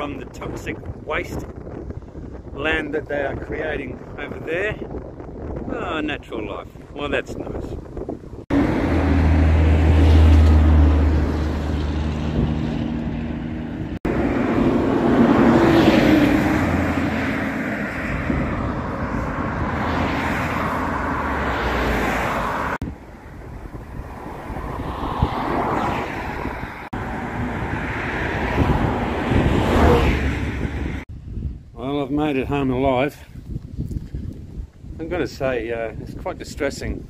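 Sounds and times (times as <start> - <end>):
road traffic passing: 7.9 - 31.1.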